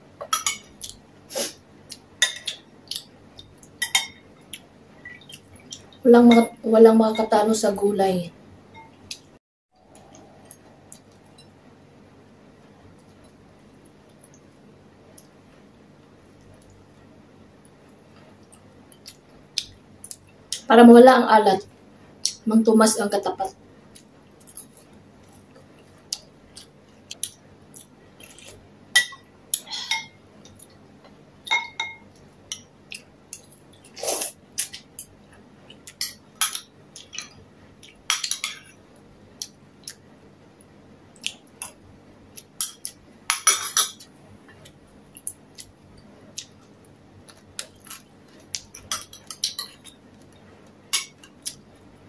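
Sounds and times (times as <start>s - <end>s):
spoon clinking on ceramic bowl: 31.5s - 32.0s.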